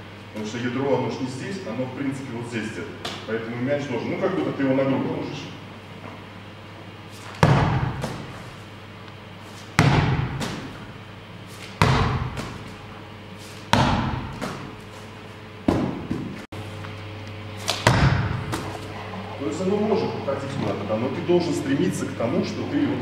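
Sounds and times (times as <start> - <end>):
medicine ball thudding: 7.3 - 8.5, 9.7 - 11.0, 11.6 - 12.8, 13.7 - 14.9, 15.6 - 16.4, 17.8 - 18.7
ball bouncing: 11.8 - 12.8, 13.7 - 14.8, 15.7 - 16.4.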